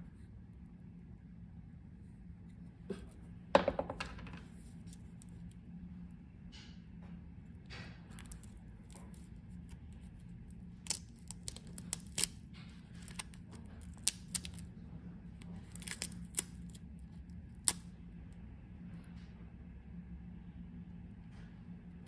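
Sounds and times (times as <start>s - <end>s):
faint steady hum: 0.0s - 22.0s
tape crackling as it peels: 8.1s - 14.7s, 15.4s - 17.9s.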